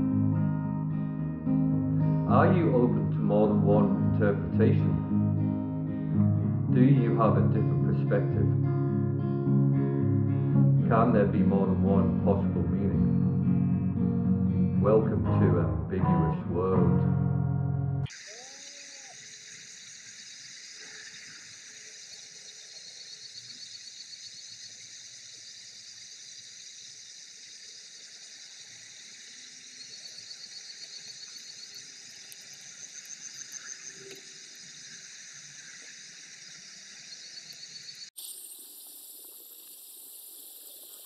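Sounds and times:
insects chirping in pulses: 0:18.1 - 0:41.0
insects hissing: 0:18.1 - 0:41.0.

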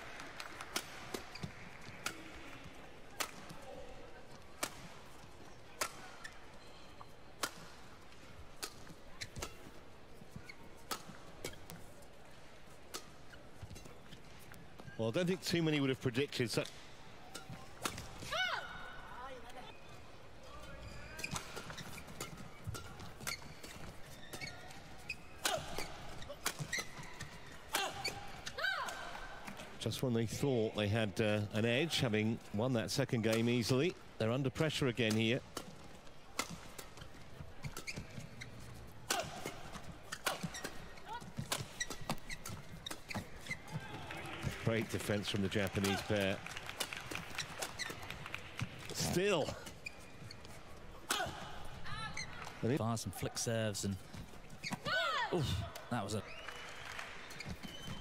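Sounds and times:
rackets hitting shuttlecock: 0:00.4 - 0:03.7, 0:04.6 - 0:06.4, 0:07.4 - 0:07.9, 0:08.6 - 0:09.8, 0:10.4 - 0:11.9, 0:12.9 - 0:14.0, 0:16.6 - 0:18.4, 0:21.2 - 0:29.8, 0:35.0 - 0:51.8
shoe squeaks on court floor: 0:06.0 - 0:07.3, 0:08.6 - 0:12.0, 0:13.0 - 0:15.0, 0:20.6 - 0:28.6, 0:36.4 - 0:43.9, 0:47.4 - 0:48.2, 0:48.9 - 0:51.0, 0:51.9 - 0:52.6, 0:54.1 - 0:54.9, 0:57.2 - 0:58.0.

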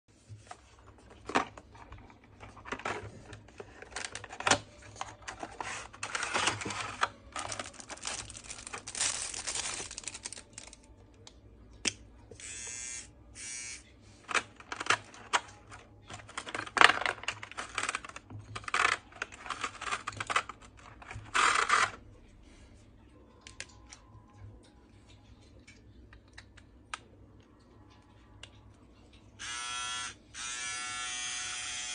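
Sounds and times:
cardboard and plastic rustling: 0:00.3 - 0:10.9, 0:14.3 - 0:22.0
electric trimmer buzzing: 0:29.4 - 0:31.9.

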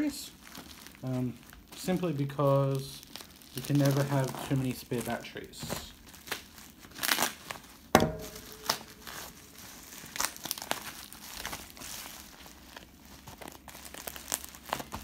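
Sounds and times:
bubble wrap crinkling: 0:00.0 - 0:15.0
sharp knock: 0:08.0 - 0:09.1.

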